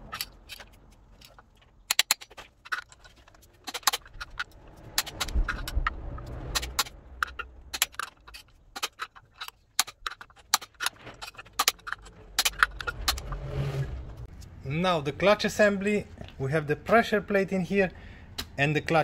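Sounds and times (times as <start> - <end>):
low rumble: 3.0 - 9.4, 10.9 - 15.3.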